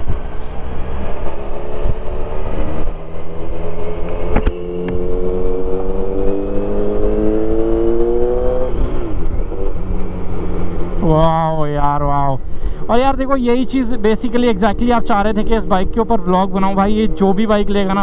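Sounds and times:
motorcycle engine accelerating: 0.0s - 11.5s.

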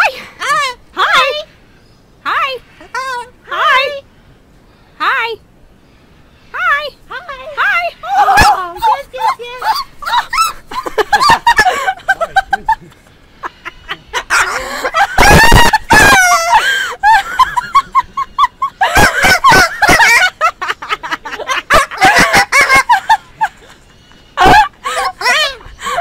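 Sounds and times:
cockatoo screeching: 13.4s - 20.2s.

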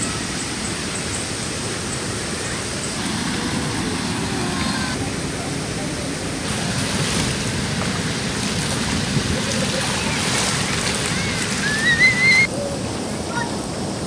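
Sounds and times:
river water rushing: 0.0s - 14.0s
water splashed by hand: 6.5s - 12.5s
child squealing: 11.2s - 12.5s.

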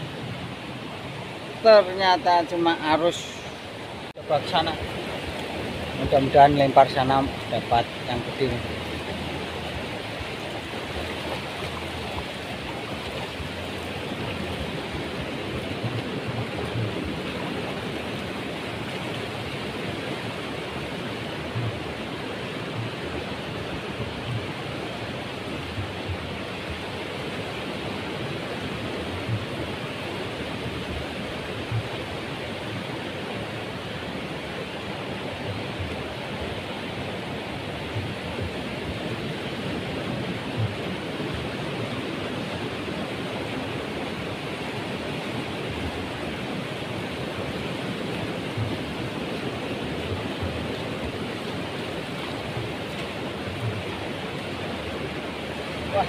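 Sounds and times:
small surf waves washing: 0.0s - 56.0s
low thumps: 21.5s - 21.9s.

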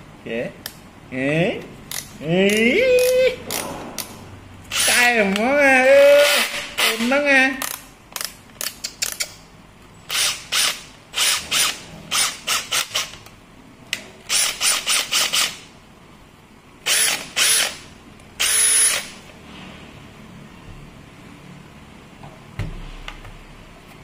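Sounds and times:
cordless drill whining: 16.9s - 17.8s, 18.4s - 19.2s.

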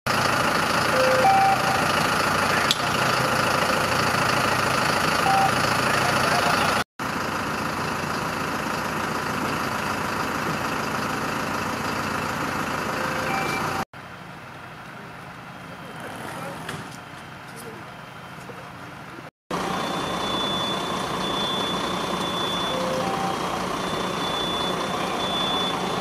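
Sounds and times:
diesel truck engines running: 0.1s - 26.0s
short electronic beeps: 1.0s - 2.0s, 5.2s - 6.8s, 13.0s - 13.8s, 19.6s - 26.0s.

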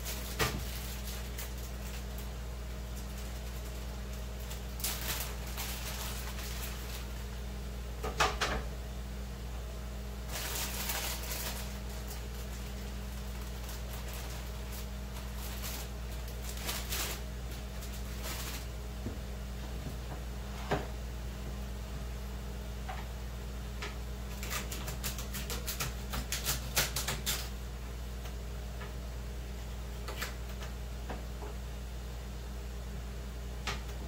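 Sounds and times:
plastic bag crinkling: 0.0s - 7.3s, 10.2s - 18.8s
steady low hum: 0.0s - 34.0s.

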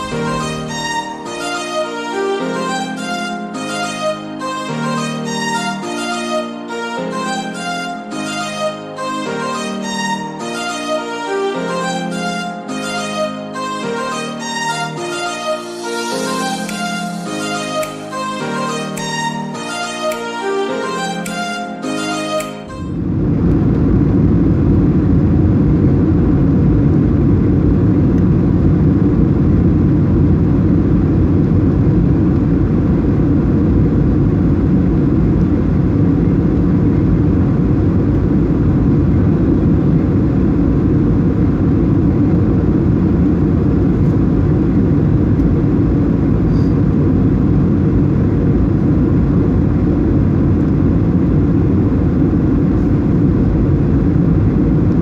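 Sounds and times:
airplane cabin engine rumble: 22.8s - 55.0s.

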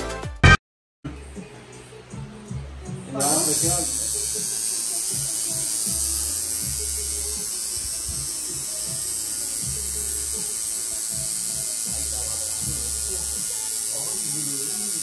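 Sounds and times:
tattoo machine buzzing: 3.2s - 15.0s.

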